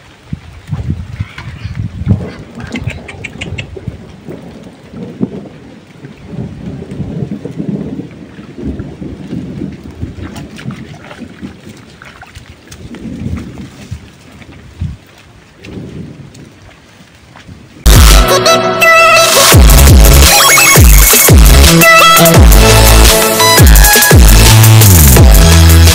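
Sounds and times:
rain falling: 0.0s - 18.5s, 19.2s - 25.9s
thunder rumbling: 1.9s - 11.8s, 12.8s - 14.1s, 15.6s - 16.8s.

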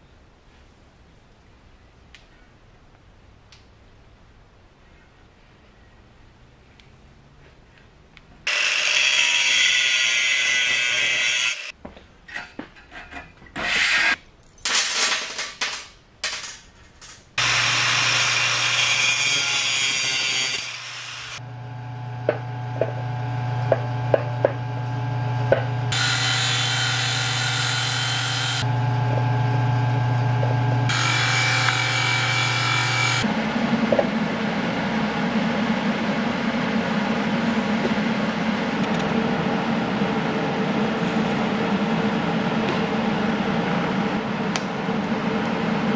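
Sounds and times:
angle grinder grinding steel: 8.5s - 11.7s, 17.4s - 21.4s, 25.9s - 33.3s
grinder motor humming: 17.4s - 34.4s.

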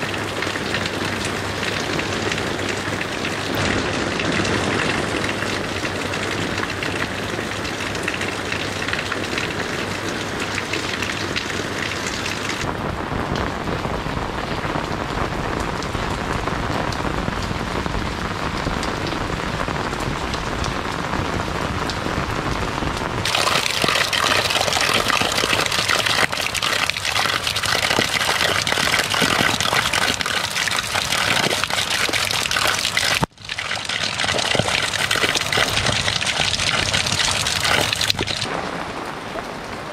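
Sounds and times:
runoff water splashing: 0.0s - 12.7s, 23.2s - 39.9s
water spilling into a puddle: 0.0s - 12.7s, 23.2s - 38.8s
steady rain falling: 0.0s - 39.9s.

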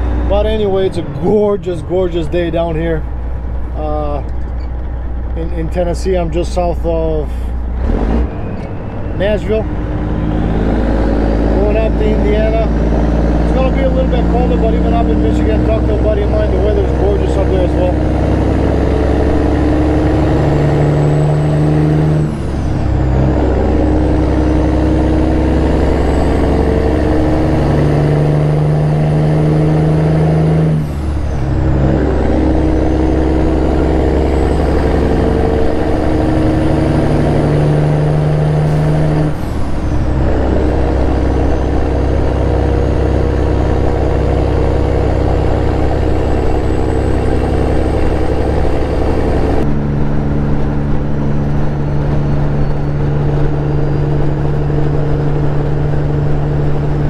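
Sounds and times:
truck diesel engine under load: 0.0s - 57.0s
high whistle climbing: 8.2s - 11.4s.

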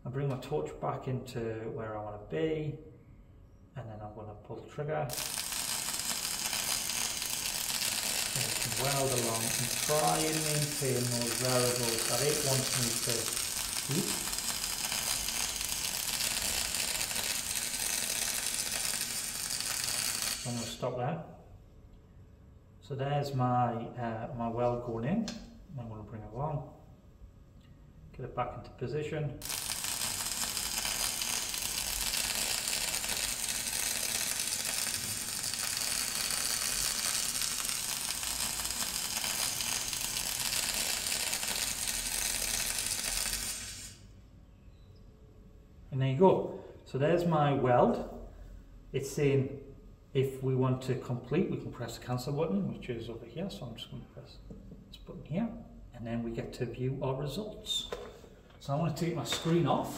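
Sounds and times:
crackling welding arc hiss: 5.1s - 21.2s, 29.4s - 44.2s, 57.6s - 59.9s.

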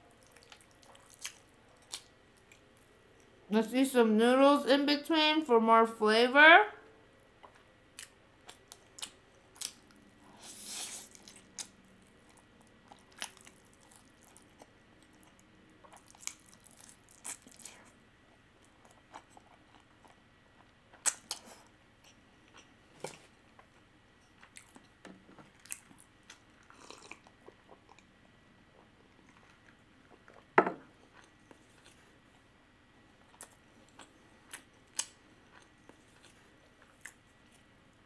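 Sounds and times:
wet chewing: 0.2s - 3.3s, 10.5s - 17.9s.

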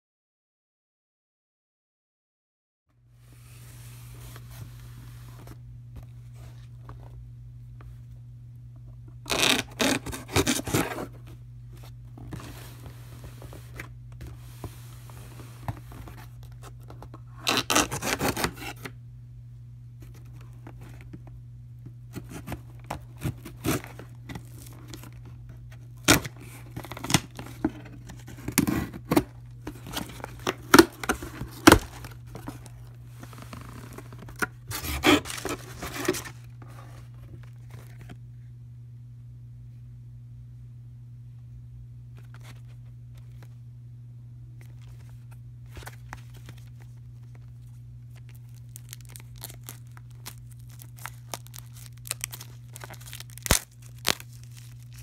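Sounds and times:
steady low hum: 2.9s - 55.0s
knife slitting packing tape: 9.3s - 11.0s, 17.4s - 18.8s.

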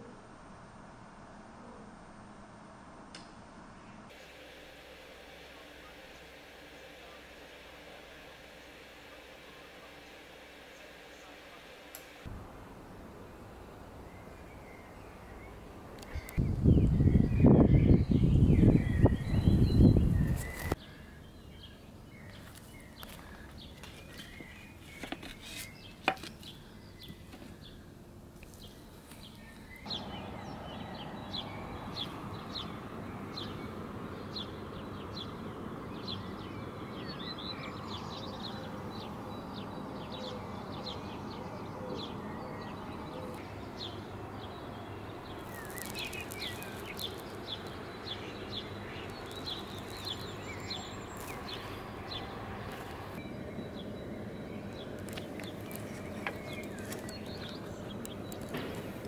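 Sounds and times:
steady background hiss: 0.0s - 16.6s
small birds chirping: 4.1s - 59.0s
loud low rumble: 29.9s - 40.6s.

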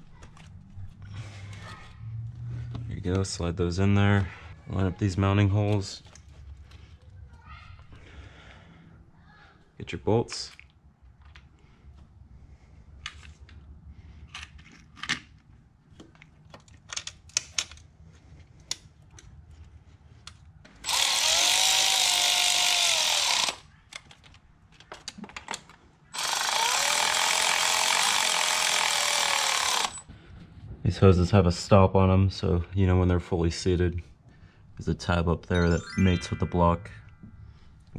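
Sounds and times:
cordless power tool whining: 20.8s - 23.6s, 26.2s - 30.0s.

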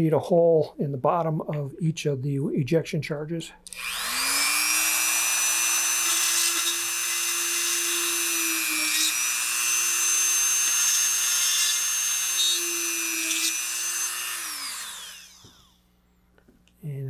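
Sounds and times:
rotary tool drill whine: 3.7s - 15.8s.

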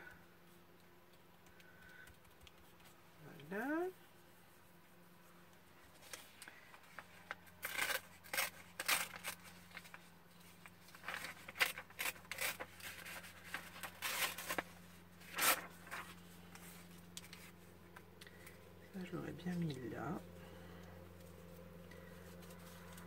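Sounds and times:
paper tearing and rustling: 6.0s - 17.6s.

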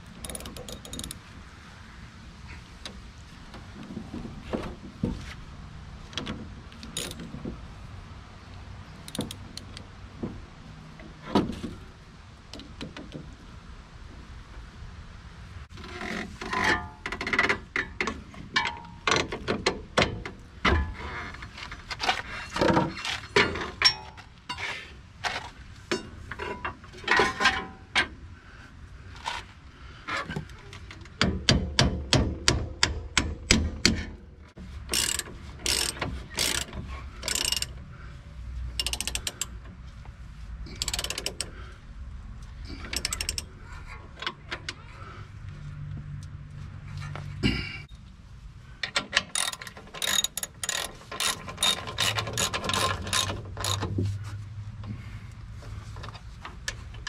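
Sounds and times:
wrenches clinking: 0.0s - 1.3s, 6.2s - 7.5s, 9.0s - 9.8s, 15.7s - 24.7s, 34.8s - 37.9s, 38.7s - 39.7s, 40.7s - 41.7s, 42.5s - 44.8s, 48.8s - 54.0s
socket ratchet clicking: 0.1s - 1.2s, 6.8s - 7.2s, 9.0s - 9.9s, 34.9s - 37.8s, 38.8s - 39.6s, 40.8s - 41.5s, 42.9s - 43.5s, 48.9s - 53.9s.

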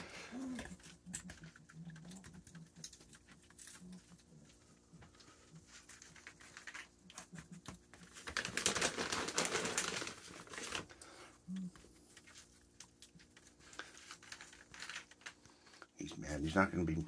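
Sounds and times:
skunk claws clicking and scratching: 0.0s - 17.0s.

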